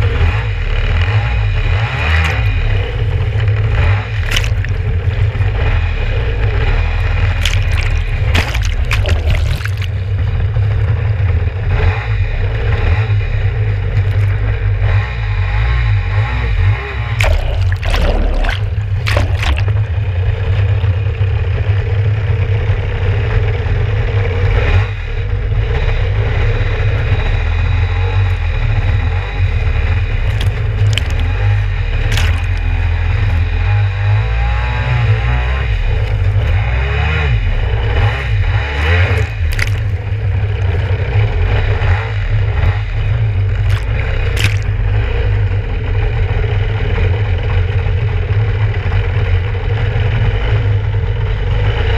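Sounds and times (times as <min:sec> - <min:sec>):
water splashing against hull: 0:03.0 - 0:05.8, 0:07.0 - 0:10.3, 0:13.9 - 0:14.6, 0:17.2 - 0:20.7, 0:30.1 - 0:33.7, 0:38.7 - 0:41.7, 0:43.4 - 0:45.0.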